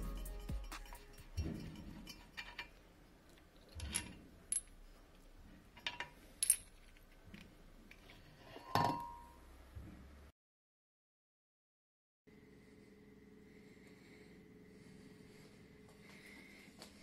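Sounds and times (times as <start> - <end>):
light metal clinks and taps: 0.1 - 2.8.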